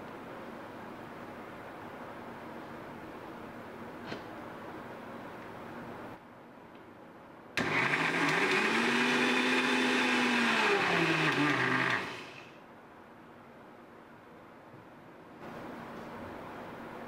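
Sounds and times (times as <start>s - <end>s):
mixer grinder motor running: 7.6s - 12.5s.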